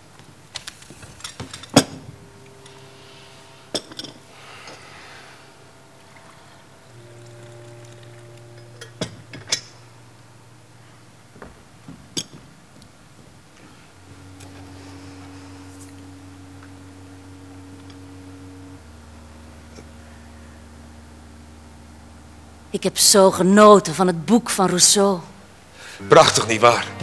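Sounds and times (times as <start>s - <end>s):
soft underscore music: 6.8s - 10.8s, 26.0s - 27.0s.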